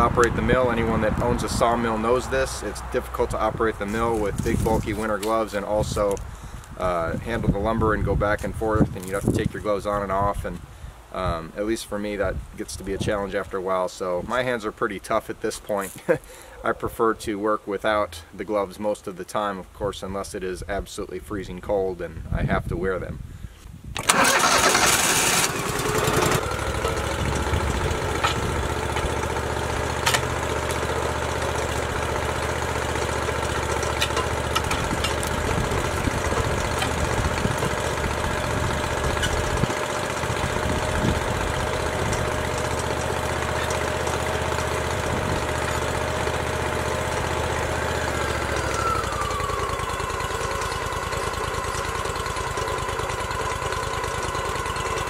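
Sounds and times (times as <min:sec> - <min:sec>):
sawmill engine starting and running: 0:00.0 - 0:08.2, 0:24.0 - 0:55.0.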